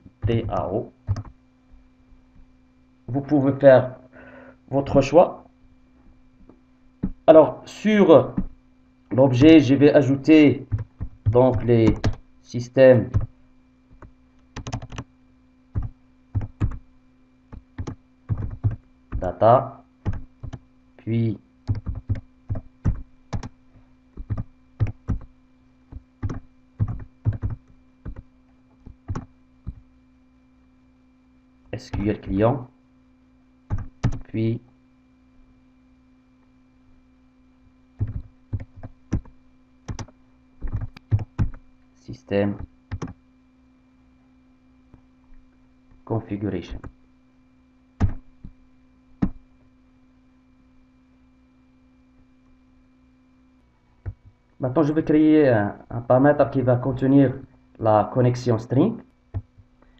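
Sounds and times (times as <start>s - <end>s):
faint steady hum: 0.0s - 59.9s
typing on computer keyboard: 0.4s - 1.4s, 10.7s - 12.2s, 13.9s - 15.1s, 15.8s - 16.8s, 17.5s - 19.3s, 20.0s - 20.6s, 21.7s - 23.6s, 24.2s - 25.3s, 25.9s - 29.8s, 33.7s - 34.3s, 38.0s - 41.6s, 42.6s - 43.2s.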